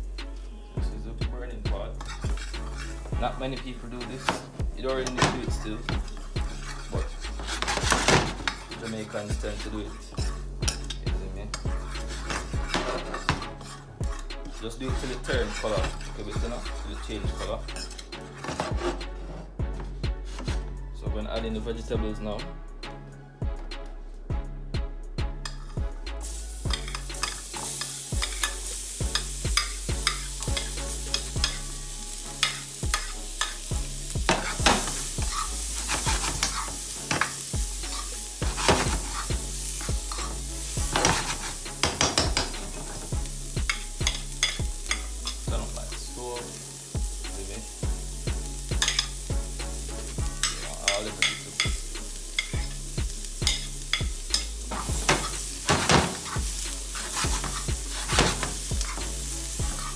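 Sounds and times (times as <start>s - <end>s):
spoon scraping a pan: 1.9s - 19.6s, 25.4s - 46.9s, 48.6s - 49.3s, 50.3s - 59.9s
vegetables sizzling in a frying pan: 26.2s - 59.9s.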